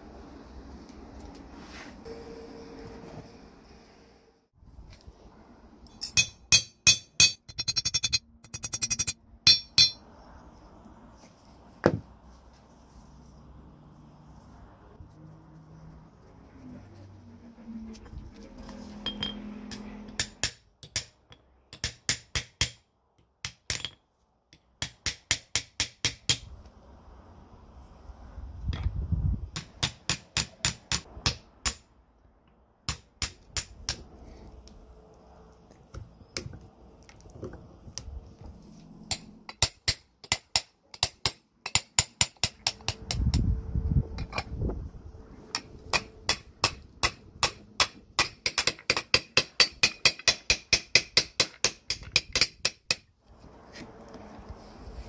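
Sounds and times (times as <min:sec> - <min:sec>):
hammer tapping metal: 0:05.9 - 0:10.0, 0:19.1 - 0:22.8, 0:39.1 - 0:43.2, 0:45.5 - 0:53.1.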